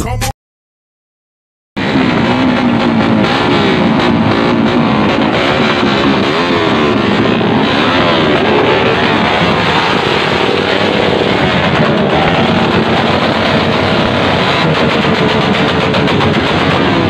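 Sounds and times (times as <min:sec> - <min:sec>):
music playing: 0:00.0 - 0:00.3
motorcycle engine revving: 0:01.8 - 0:17.0.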